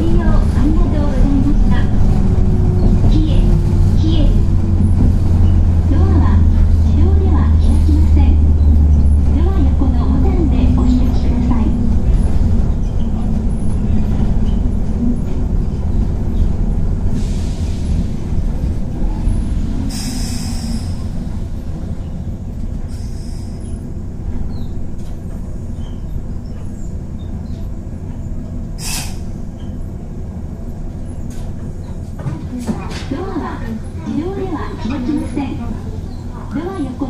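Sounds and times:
electric train humming: 0.0 - 37.0
air hisses: 28.8 - 29.4.

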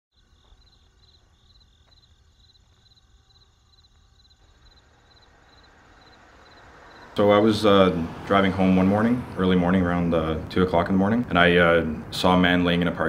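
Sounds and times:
faint cricket chirping: 0.1 - 7.8.

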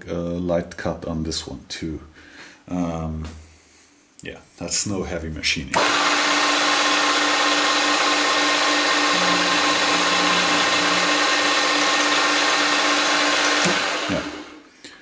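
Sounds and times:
milling machine whining: 5.8 - 14.6.

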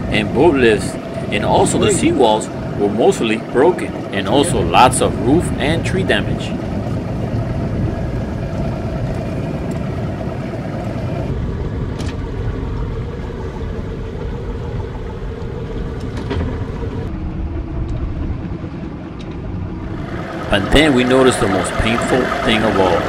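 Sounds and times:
boat engine running: 0.0 - 23.0.

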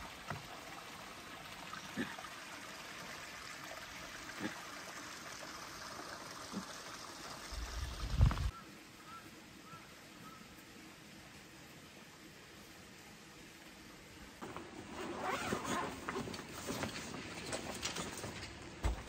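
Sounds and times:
running water trickling: 0.0 - 8.6.

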